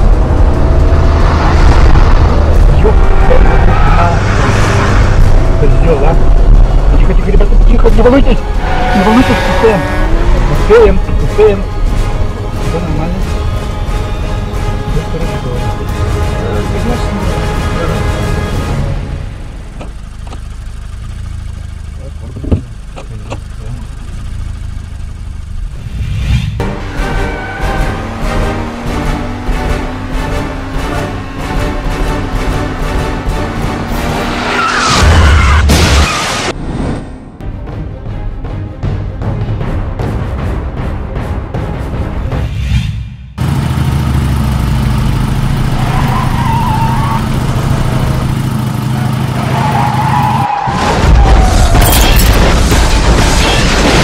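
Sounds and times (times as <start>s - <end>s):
car engine and road noise: 0.0s - 54.0s
motorcycle engine running: 8.4s - 11.1s, 19.6s - 26.9s, 43.4s - 46.4s, 47.2s - 49.4s.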